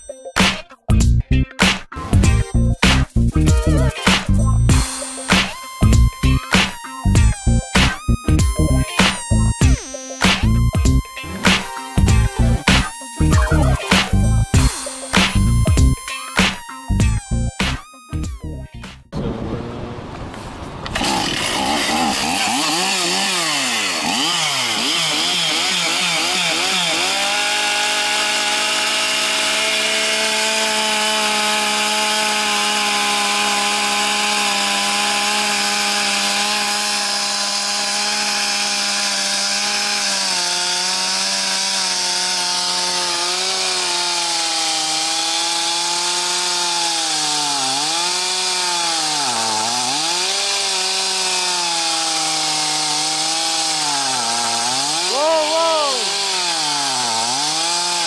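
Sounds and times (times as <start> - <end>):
chainsaw revving: 7.8 - 16.0, 20.8 - 58.0.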